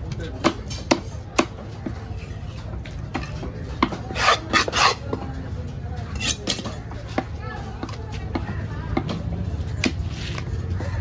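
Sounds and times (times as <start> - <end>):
knife scraping wooden block: 3.2 - 5.1, 6.1 - 6.7.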